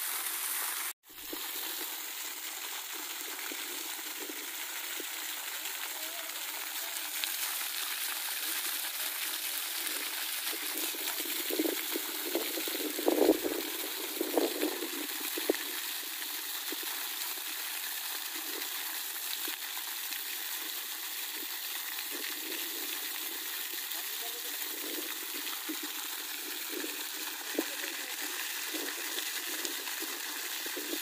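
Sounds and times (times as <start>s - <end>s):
water rushing: 0.0s - 31.0s.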